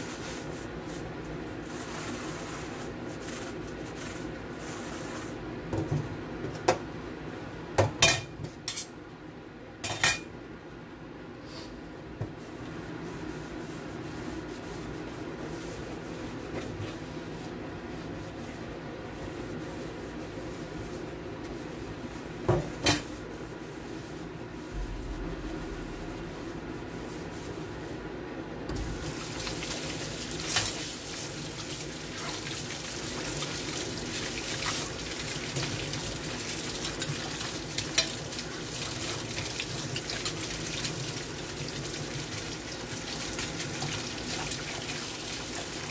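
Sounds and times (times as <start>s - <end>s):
tap water running: 28.7s - 45.9s.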